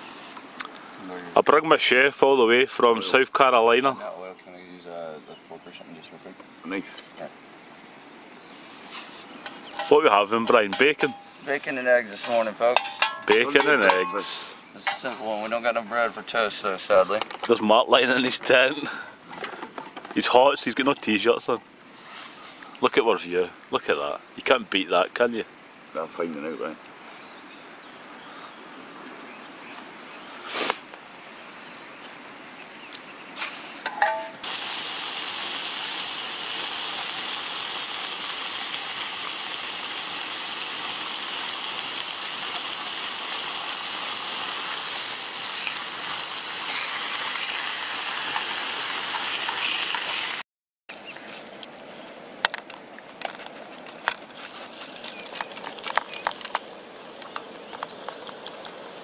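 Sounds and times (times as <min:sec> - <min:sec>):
bacon sizzling in a frying pan: 0:34.4 - 0:50.4.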